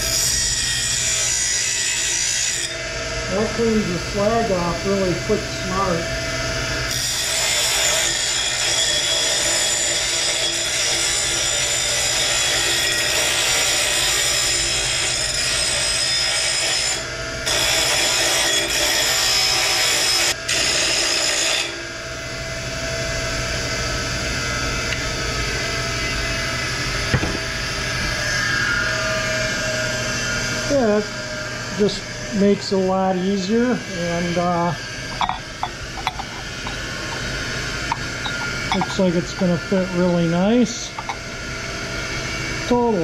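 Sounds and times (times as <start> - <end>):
bench grinder grinding steel: 0.0 - 4.5, 6.9 - 21.8, 33.2 - 41.7
grinder motor hum: 33.2 - 42.0.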